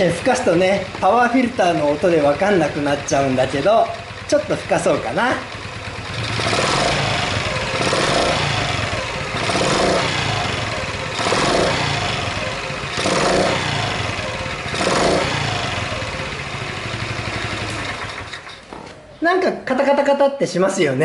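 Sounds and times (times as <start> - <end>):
light engine clattering: 0.0 - 19.1
loud intake noise: 5.5 - 18.5
small engine revving: 5.9 - 18.5.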